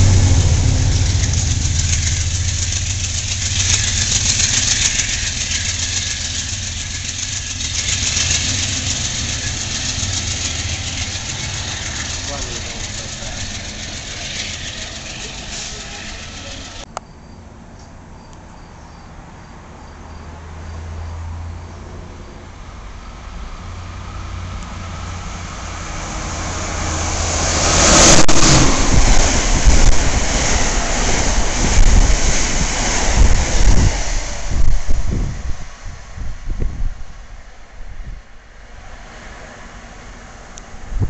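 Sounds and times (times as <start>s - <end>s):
low thumps of train cars: 0.0s - 16.9s, 26.0s - 36.9s
train passing at speed: 0.0s - 16.9s, 19.5s - 41.0s
wheels rumbling on rail: 0.0s - 17.0s, 20.1s - 41.0s.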